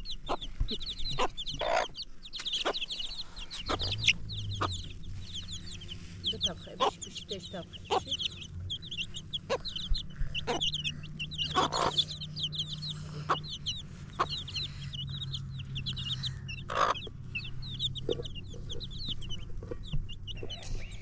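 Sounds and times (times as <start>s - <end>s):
chickens peeping: 0.0s - 21.0s
low steady hum: 0.0s - 21.0s.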